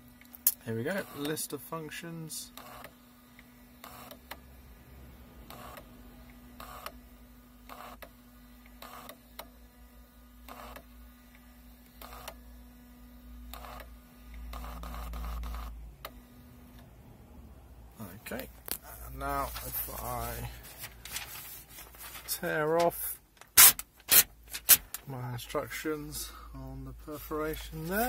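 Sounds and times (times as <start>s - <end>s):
printer printing: 0.9s - 1.6s, 2.5s - 4.8s, 5.4s - 17.0s, 18.3s - 24.9s
paper strip feeding: 19.4s - 25.0s.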